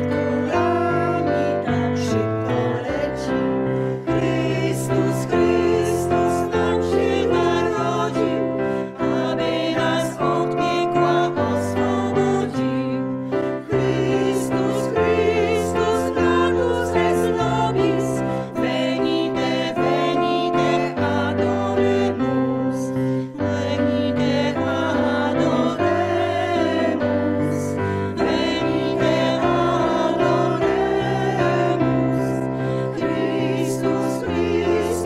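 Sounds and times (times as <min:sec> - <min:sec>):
piano accompaniment: 0:00.0 - 0:35.0
women's choir singing a carol: 0:00.0 - 0:35.0
singers breathing: 0:03.6 - 0:04.1, 0:08.6 - 0:09.0, 0:32.4 - 0:33.0.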